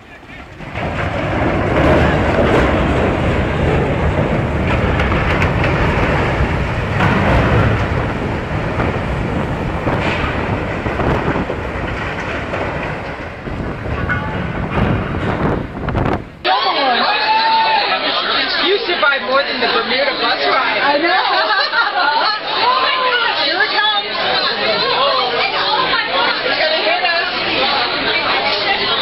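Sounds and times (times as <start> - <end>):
steel ship hull grinding: 0.0 - 16.5.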